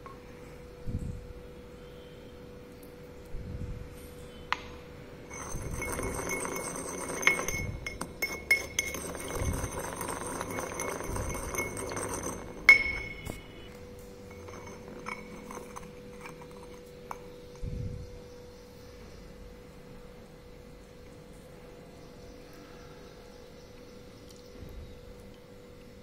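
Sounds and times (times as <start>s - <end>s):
pestle scraping in mortar: 5.3s - 17.6s.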